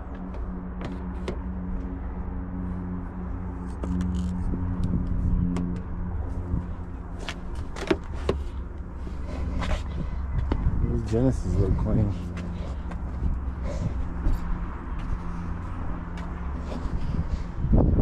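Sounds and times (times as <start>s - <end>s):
low hum: 0.0s - 18.0s.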